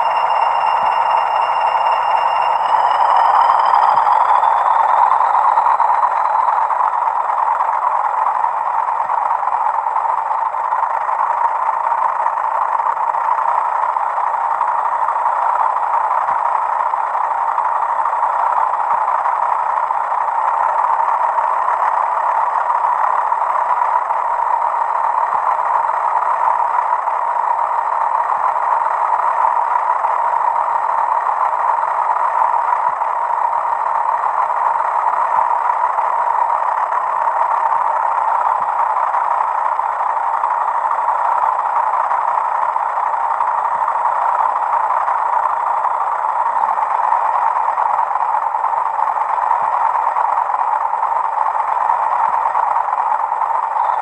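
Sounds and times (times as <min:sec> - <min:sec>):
faint high whistle: 0:00.0 - 0:08.8, 0:53.6 - 0:54.0
diesel locomotive engine running: 0:00.0 - 0:54.0.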